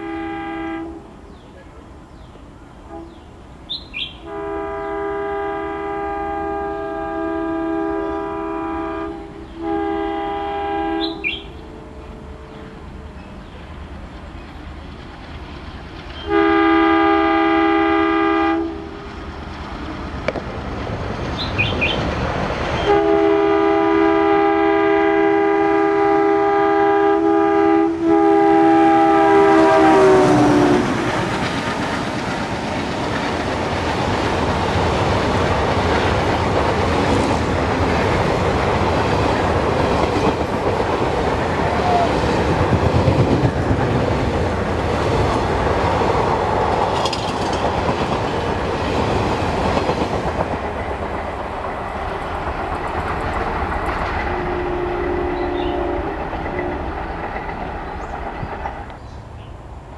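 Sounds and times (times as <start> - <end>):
two-tone locomotive horn blast: 0.0 - 1.2, 2.9 - 3.3, 4.2 - 12.9, 16.2 - 19.0, 22.8 - 31.4, 54.0 - 57.2
train wheels rolling on rails: 1.0 - 59.9.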